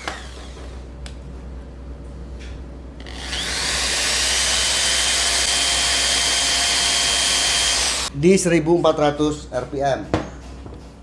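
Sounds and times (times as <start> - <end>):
drill motor running: 0.0 - 0.6, 3.0 - 8.1.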